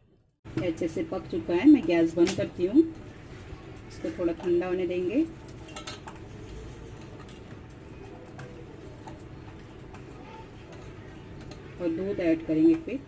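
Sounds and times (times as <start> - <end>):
spoon stirring liquid in metal pot: 6.9 - 11.7.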